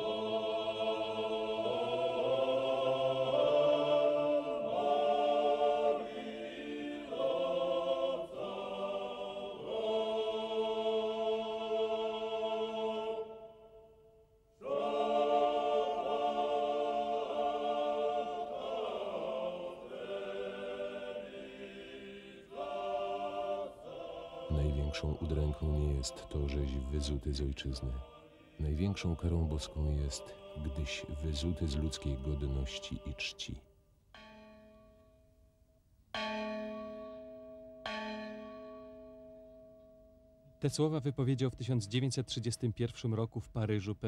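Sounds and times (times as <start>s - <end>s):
choir singing sustained chords: 0.0s - 33.7s.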